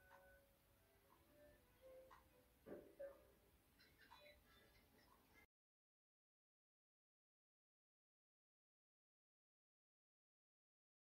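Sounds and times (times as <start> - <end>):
faint sparse background music: 0.0 - 5.5.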